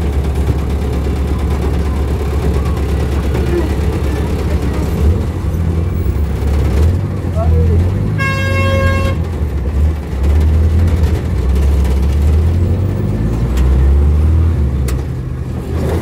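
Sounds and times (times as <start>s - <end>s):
vehicle engine humming: 0.0s - 16.0s
horn sounding: 8.2s - 9.3s.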